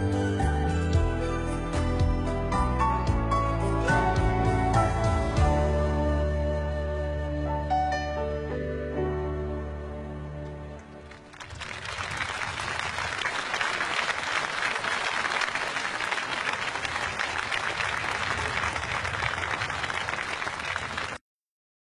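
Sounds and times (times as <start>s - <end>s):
audience applause: 11.0s - 21.2s.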